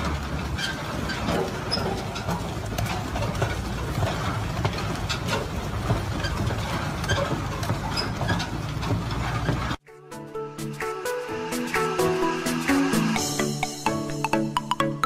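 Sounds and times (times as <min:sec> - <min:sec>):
heavy truck noise: 0:00.0 - 0:09.8, 0:10.4 - 0:15.0
steel rim clattering on road: 0:00.0 - 0:09.8
music: 0:09.8 - 0:15.0.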